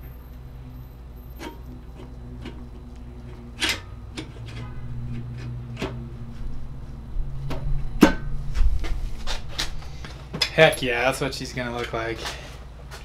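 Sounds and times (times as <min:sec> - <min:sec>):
low steady hum: 0:00.0 - 0:13.0
sharp metal clank: 0:07.5 - 0:08.5.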